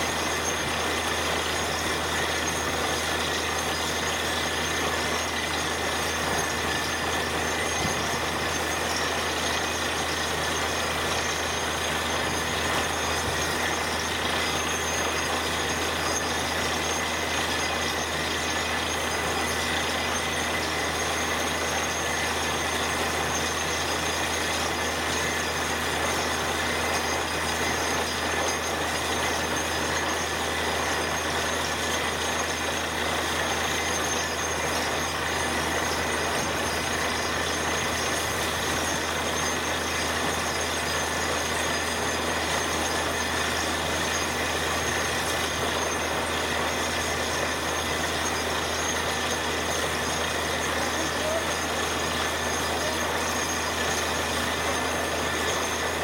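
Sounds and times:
air compressor whine: 0.0 - 56.0
drilling rig running: 0.0 - 56.0.

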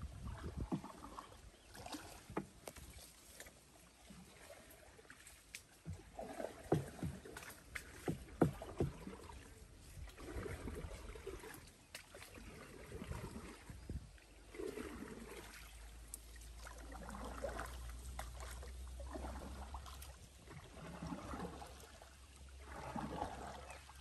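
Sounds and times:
paddle splashing in water: 0.0 - 24.0
knocks on wooden boat: 6.6 - 9.2.

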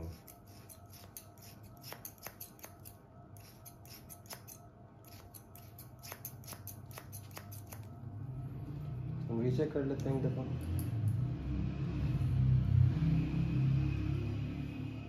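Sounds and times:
scissors snipping hair: 0.0 - 8.0.

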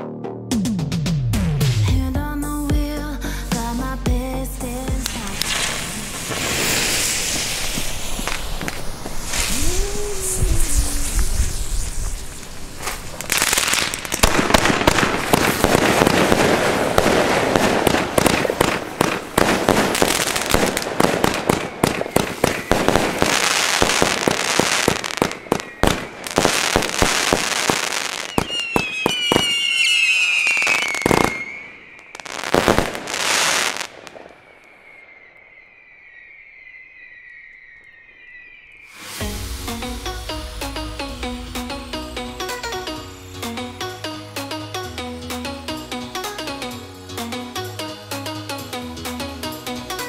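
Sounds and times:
fireworks launches and bursts: 5.0 - 44.6
high wavering tone: 34.3 - 46.4.

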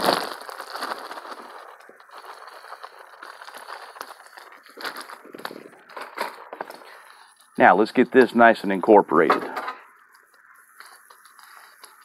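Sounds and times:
plastic bag crinkling: 0.0 - 8.7, 9.9 - 12.0
cauliflower sizzling on griddle: 10.2 - 12.0.

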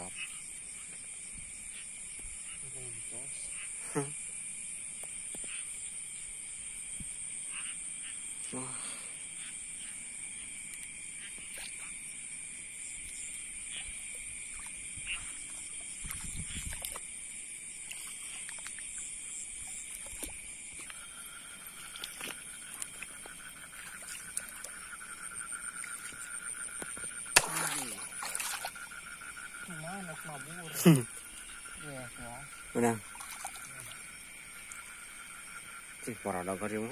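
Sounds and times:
high-pitched insect trilling: 0.0 - 36.9
wading in shallow water: 10.5 - 36.0.

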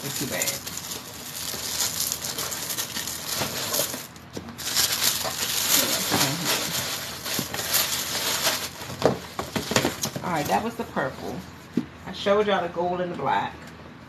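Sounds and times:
tissue paper crinkling: 0.0 - 10.6.

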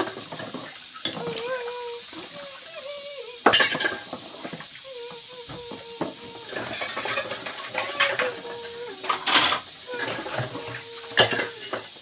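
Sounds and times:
pots and dishes clattering: 0.0 - 1.5, 3.4 - 4.8, 5.4 - 12.0
steady hiss: 0.0 - 12.0.

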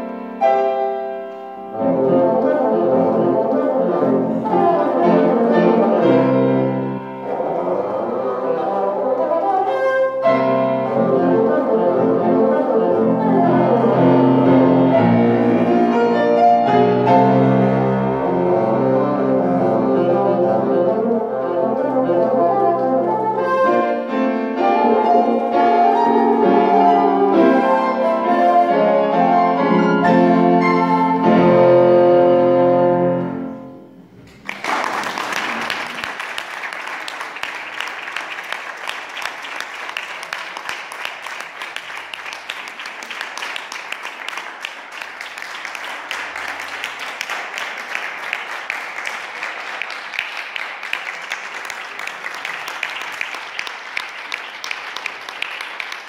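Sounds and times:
bassoon and piano classical piece: 0.0 - 34.2
audience applauding: 34.2 - 56.0.

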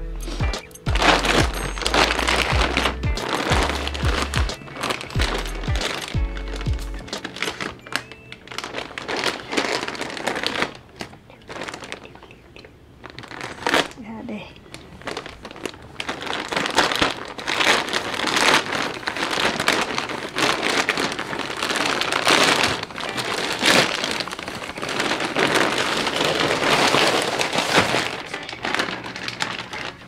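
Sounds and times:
plastic mailer bag crinkling and tearing: 0.0 - 30.0.

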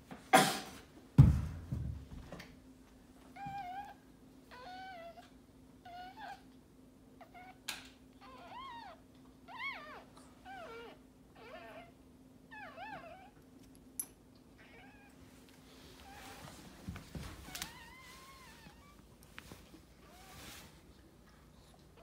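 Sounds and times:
faint steady hum: 0.0 - 22.0
puppy crying: 3.4 - 6.5, 7.2 - 7.6, 8.2 - 13.4, 14.6 - 15.2.

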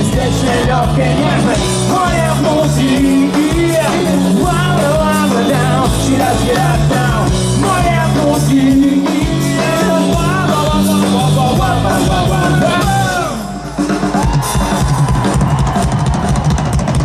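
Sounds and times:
drums: 0.0 - 17.0
live rock band: 0.0 - 17.0.

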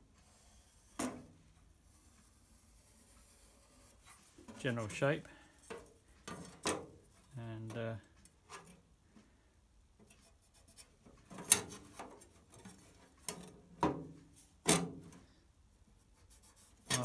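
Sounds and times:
sheet metal clicks and scrapes: 5.6 - 7.0, 10.0 - 13.6, 16.7 - 17.0.

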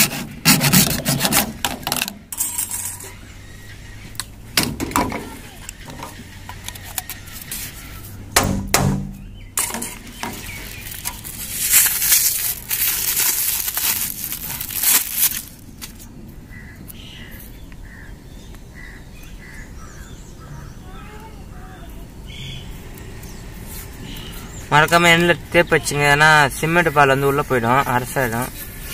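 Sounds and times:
plastic pipe rasping and scraping: 0.0 - 3.2
sharp knocks: 4.6 - 6.2, 8.3 - 10.5.

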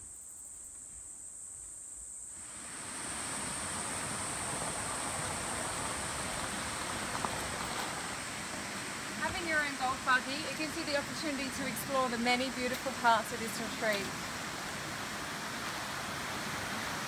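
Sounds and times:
insects buzzing chorus: 0.0 - 17.0
rushing hiss: 2.3 - 10.5.

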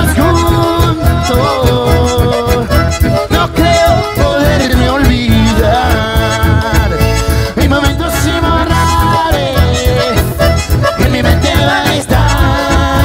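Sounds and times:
steady beat: 0.0 - 7.8
acoustic guitar: 0.0 - 13.0
bandoneon: 0.0 - 13.0
button accordion: 0.0 - 13.0
electric bass: 0.0 - 13.0
keyboard: 0.0 - 13.0.

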